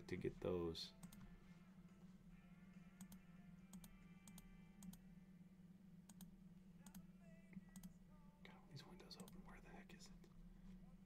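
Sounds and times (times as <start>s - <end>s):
low electrical hum: 0.0s - 11.0s
faint mouse clicks: 9.1s - 9.4s.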